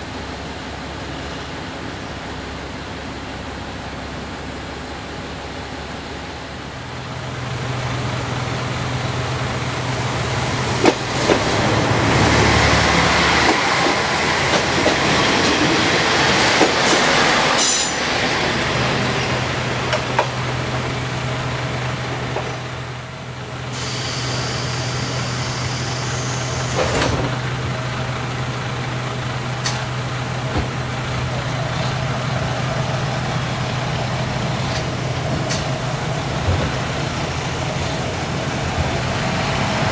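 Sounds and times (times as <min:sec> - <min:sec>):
railcar diesel engine running: 0:00.0 - 0:39.9
hiss of air: 0:23.7 - 0:27.0.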